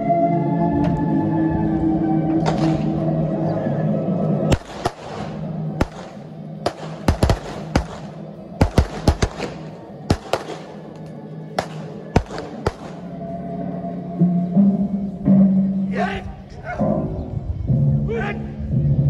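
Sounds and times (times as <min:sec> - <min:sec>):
background music: 0:00.0 - 0:19.0
gunshots: 0:02.4 - 0:03.0, 0:04.5 - 0:13.2.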